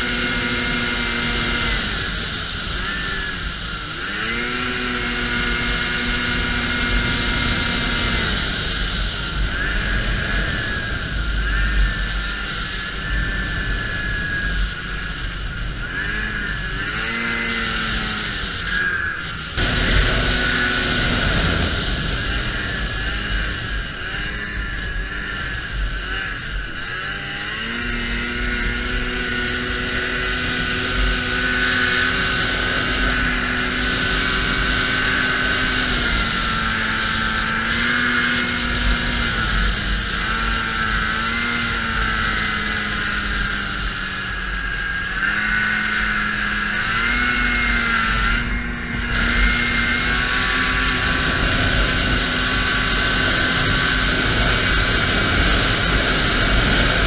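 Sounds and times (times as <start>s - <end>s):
snowmobile engine cruising: 0.0s - 57.0s
wind rumbling on microphone: 0.0s - 57.0s.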